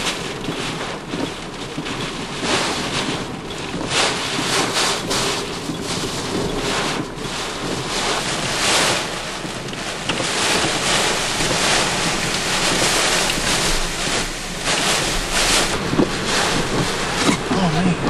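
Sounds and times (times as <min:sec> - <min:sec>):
wind buffeting microphone: 0:00.0 - 0:18.0
wind with driving rain: 0:00.0 - 0:18.0.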